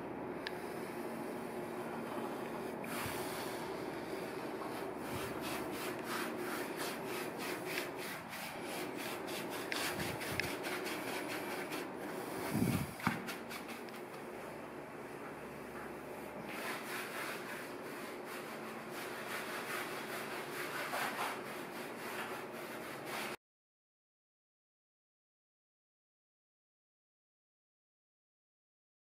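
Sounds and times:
brush scrubbing plaster wall: 0.7 - 14.2, 15.1 - 23.4.

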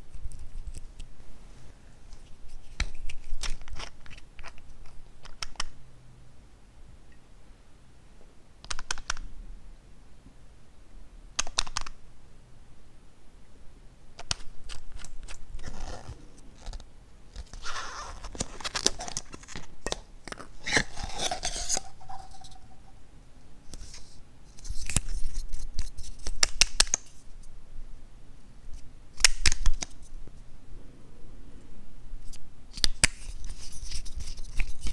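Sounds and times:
plastic caps unscrewing: 18.2 - 22.9.

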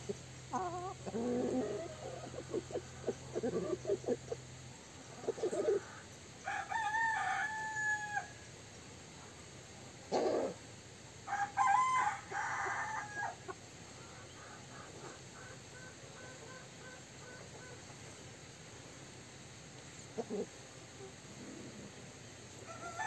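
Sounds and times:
hen clucks: 0.0 - 6.0, 20.1 - 20.6
rooster crowing: 6.4 - 8.4, 11.3 - 13.4, 22.6 - 23.0.

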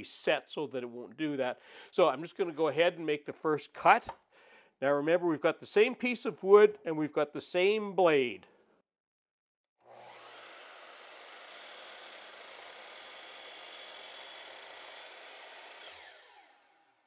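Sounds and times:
miter saw cutting board: 9.8 - 17.0
saw blade winding down whine: 9.8 - 17.0.

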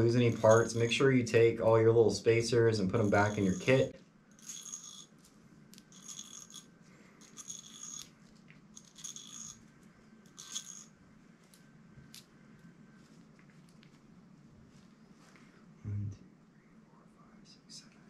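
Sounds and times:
metal spacers clinking on rod: 0.0 - 1.8, 2.9 - 8.2, 8.8 - 9.6, 10.3 - 10.9.

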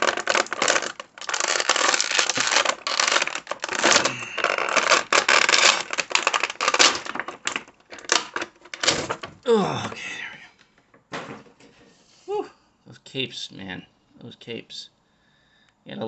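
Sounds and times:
plastic packaging crinkling: 0.0 - 9.9.

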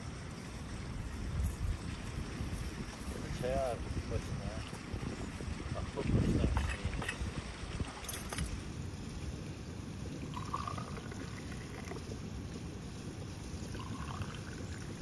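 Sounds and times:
tea pouring into glasses: 10.1 - 12.1, 13.6 - 15.0.

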